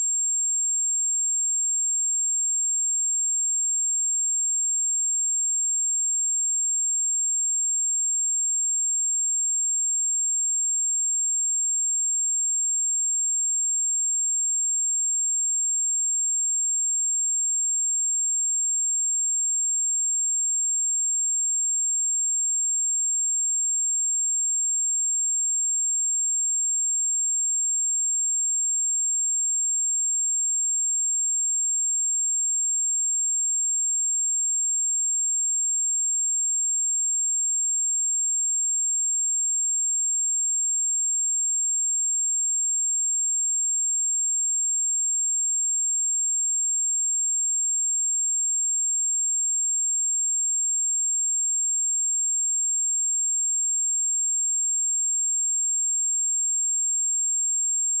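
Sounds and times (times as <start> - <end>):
high-pitched sine test tone: 0.0 - 8.0, 51.6 - 58.0.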